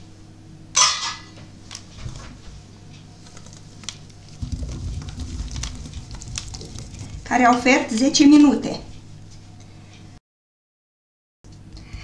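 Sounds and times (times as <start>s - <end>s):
pot scraping: 4.3s - 8.2s.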